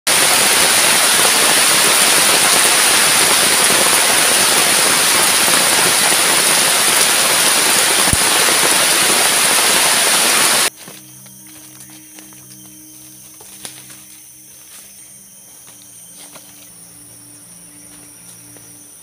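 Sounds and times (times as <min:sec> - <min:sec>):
heavy rain on foliage: 0:00.1 - 0:10.7.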